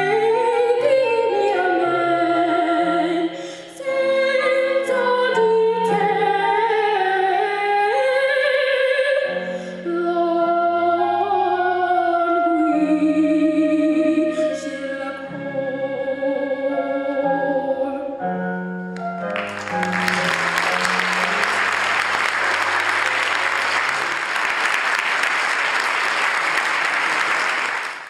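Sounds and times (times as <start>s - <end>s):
girl singing solo with accompaniment: 0.0s - 18.2s
audience applause: 19.3s - 28.0s.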